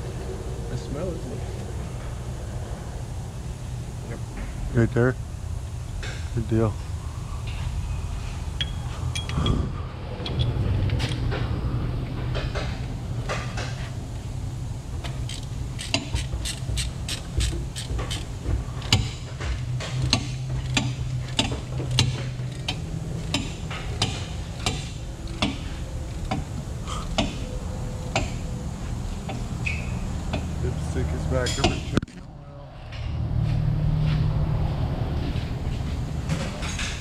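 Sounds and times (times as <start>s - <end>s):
low hum: 0.0s - 37.0s
hand tool clicking on metal: 15.3s - 18.3s.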